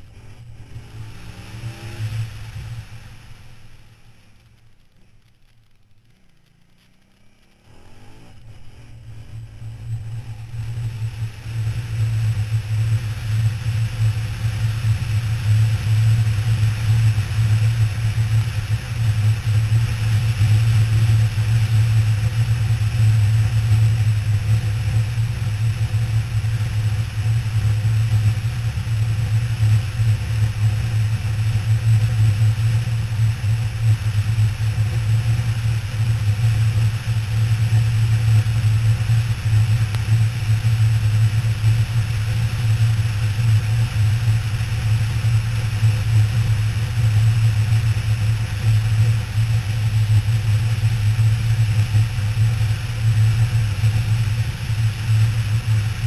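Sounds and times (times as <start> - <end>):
motorcycle engine cruising: 0.0 - 56.0.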